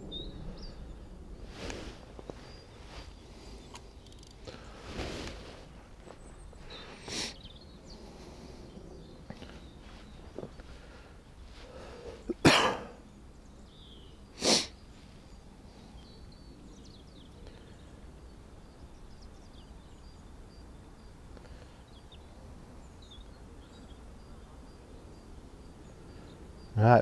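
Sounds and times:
man sneezing: 12.3s - 13.0s.

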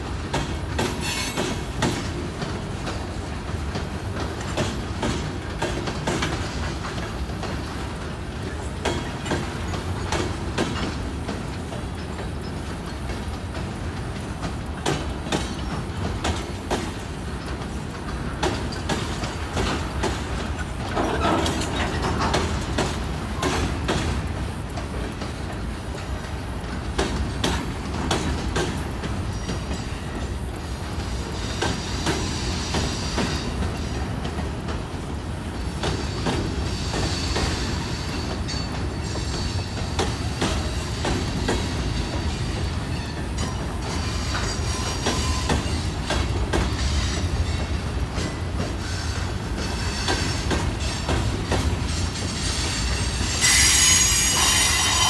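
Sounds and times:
train wheels clicking over joints: 0.0s - 55.0s
high wheel squeal: 42.0s - 46.2s, 51.9s - 55.0s.

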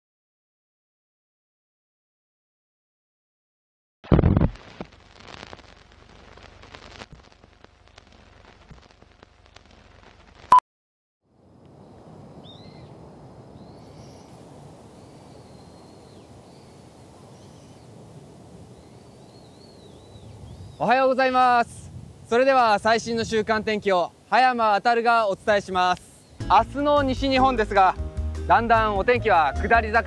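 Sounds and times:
faint irregular crackling: 4.1s - 10.6s
low wind rumble: 11.3s - 27.9s
small birds chirping: 12.4s - 13.0s, 13.6s - 18.0s, 18.6s - 21.0s.

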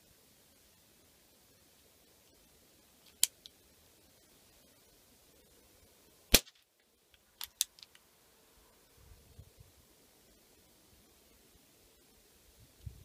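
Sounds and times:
air pistol shot: 6.3s - 6.6s.

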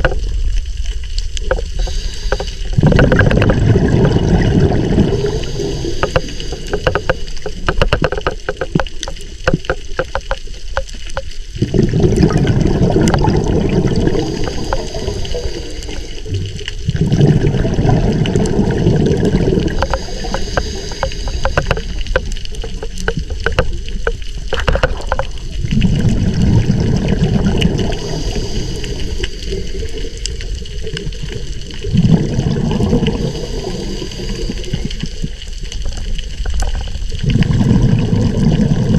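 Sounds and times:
crackling clicks: 0.0s - 38.9s
exhaled bubbles rumbling underwater: 0.0s - 38.9s
regulator hiss: 1.5s - 2.8s, 5.0s - 7.6s, 14.0s - 16.5s, 19.6s - 22.2s, 27.9s - 30.4s, 33.0s - 35.4s.

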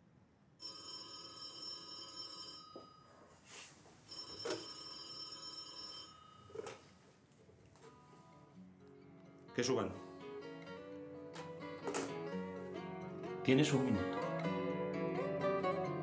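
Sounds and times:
desk telephone ringing: 0.6s - 3.3s, 4.1s - 7.0s.

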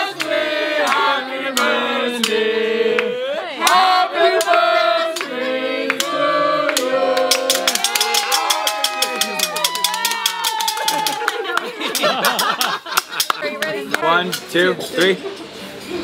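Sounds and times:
group singing: 0.0s - 7.9s
hand claps: 5.9s - 14.0s.

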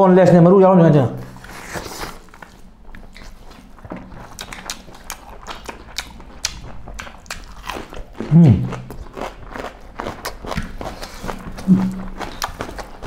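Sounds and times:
wet open-mouth chewing: 1.3s - 13.0s
low vocal grunt: 8.3s - 8.8s.

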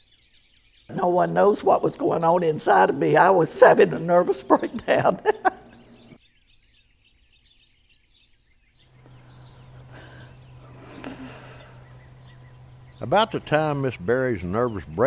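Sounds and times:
faint birds chirping: 0.0s - 15.0s
low hum with hiss: 8.9s - 15.0s.

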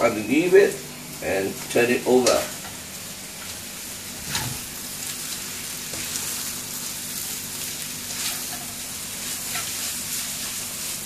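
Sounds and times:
noodles sizzling in a wok: 0.0s - 11.0s
spatula scraping a wok: 4.2s - 11.0s.

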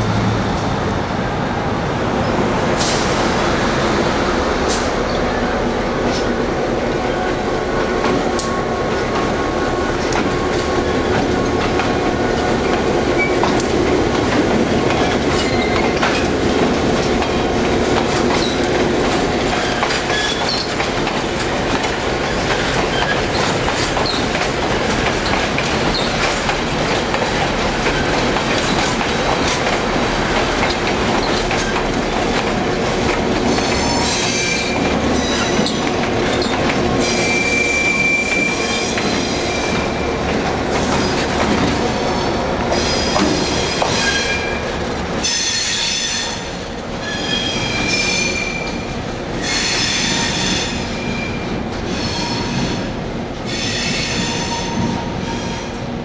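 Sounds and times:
train rumbling past: 0.0s - 56.0s
wheels clicking over rail joints: 12.6s - 37.0s
high wheel squeal: 33.5s - 39.9s, 45.2s - 48.8s.

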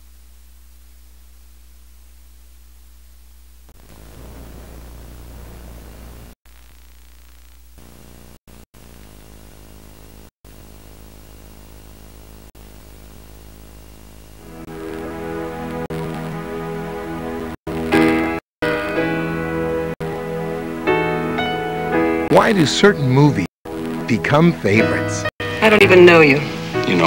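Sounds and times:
electrical hum: 0.0s - 18.4s
tape hiss: 0.0s - 27.0s.

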